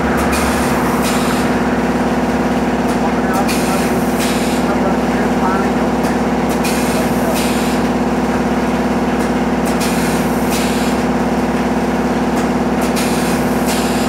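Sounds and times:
machine hum: 0.0 - 14.0
short air hisses: 9.8 - 11.0.

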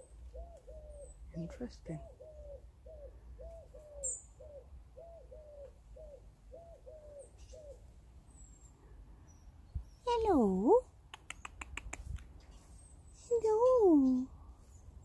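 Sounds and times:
small bird chirp: 0.0 - 15.0
wood pigeon cooing: 0.2 - 1.2, 1.9 - 7.9.

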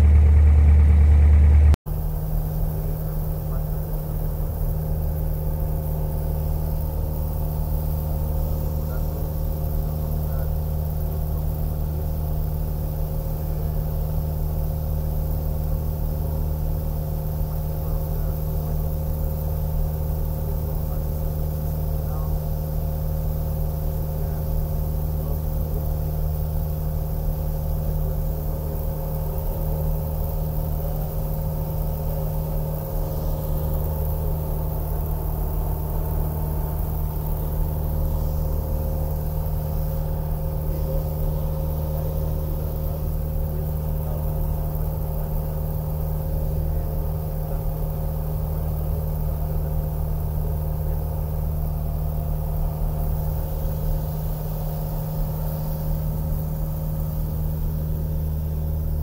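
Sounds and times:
propeller airplane engine droning: 0.0 - 59.0.

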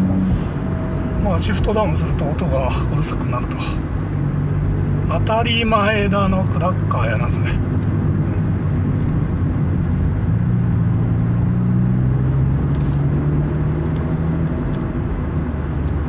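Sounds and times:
car engine pulling uphill: 0.0 - 16.0
road noise: 0.0 - 16.0.

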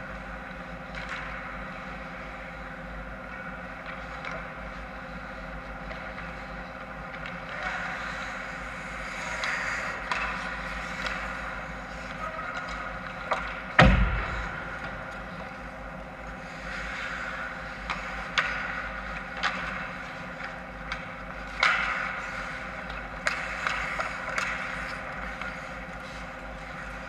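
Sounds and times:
skates and sticks scraping ice: 3.4 - 13.8, 16.3 - 27.0
loud sharp knock: 13.8 - 15.4.

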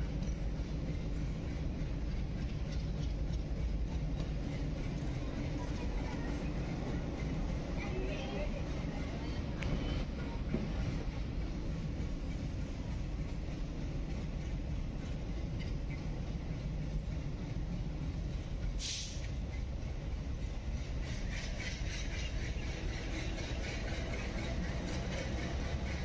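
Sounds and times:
train rumble: 0.0 - 26.0
brief hiss: 18.8 - 19.3.

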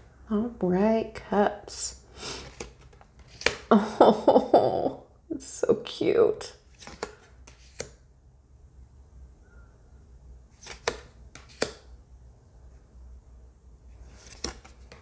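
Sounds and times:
low room hum: 0.0 - 15.0
cards clicking and sliding: 2.4 - 3.7, 6.7 - 8.0, 10.5 - 11.9, 14.0 - 15.0.

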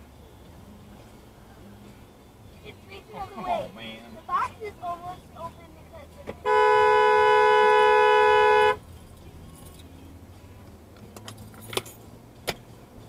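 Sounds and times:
low road noise: 0.0 - 13.0
two-tone car horn blast: 6.4 - 8.8.

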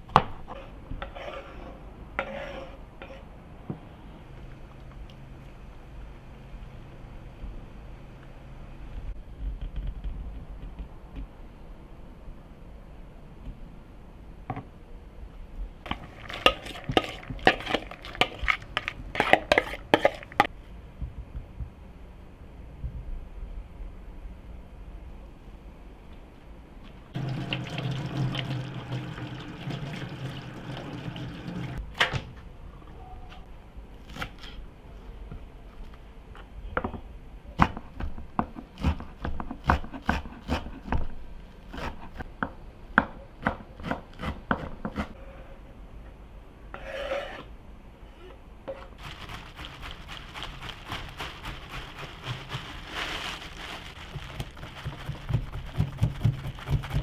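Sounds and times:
tap water running into steel sink: 27.2 - 31.8.

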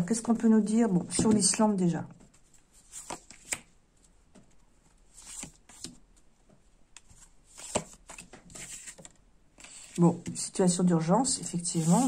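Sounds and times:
cards shuffling: 2.8 - 3.7, 5.1 - 6.0, 7.0 - 10.0.

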